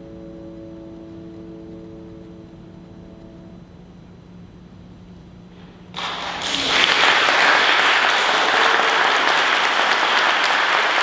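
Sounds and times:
piano notes: 0:00.0 - 0:04.0
audience applause: 0:06.0 - 0:11.0.

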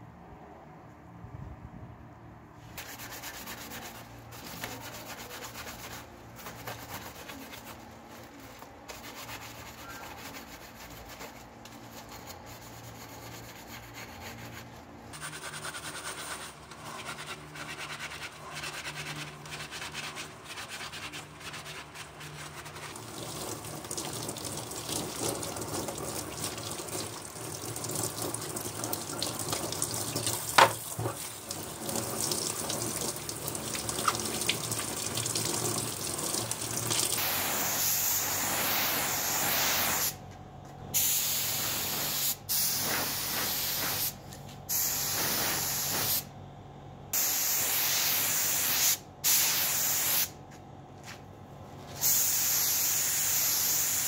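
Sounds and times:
wet scrubbing and squelching: 0:15.6 - 0:27.3
tap water running and splashing: 0:21.8 - 0:37.2.

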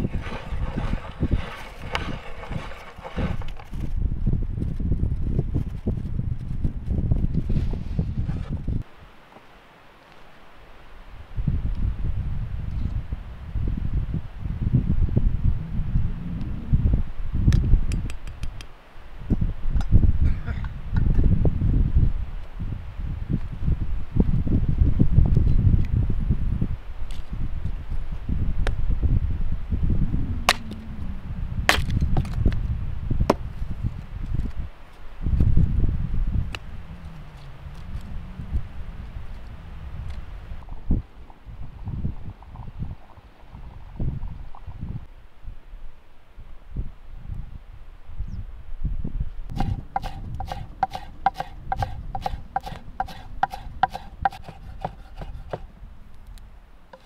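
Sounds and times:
low rumble: 0:29.3 - 0:33.2
hatchet chopping firewood: 0:31.7 - 0:32.4, 0:49.5 - 0:55.7.

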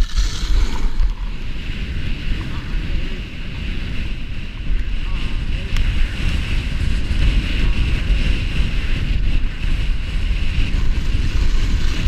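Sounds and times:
skis hissing on snow: 0:00.0 - 0:01.6
wind buffeting microphone: 0:00.0 - 0:12.0.

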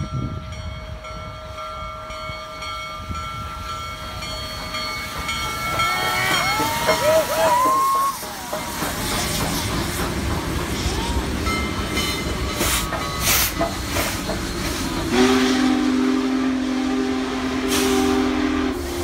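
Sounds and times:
train wheels rumbling: 0:00.0 - 0:19.0
steam chime whistle: 0:02.6 - 0:08.8, 0:10.7 - 0:19.0
steam hissing: 0:03.5 - 0:19.0.

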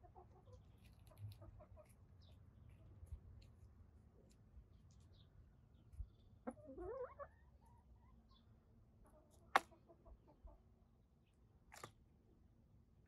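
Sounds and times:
hens clucking: 0:06.5 - 0:08.1.

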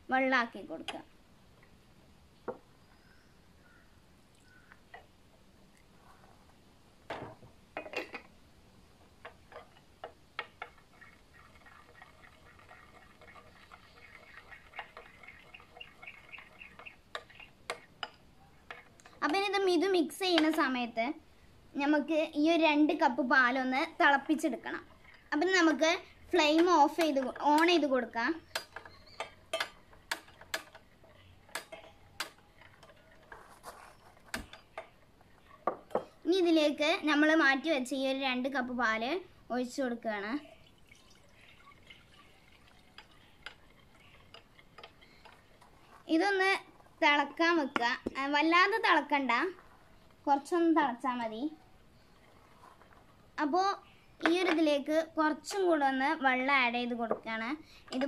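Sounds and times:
spoon scraping a bowl: 0:10.6 - 0:19.1, 0:28.6 - 0:35.0, 0:52.1 - 0:53.1.

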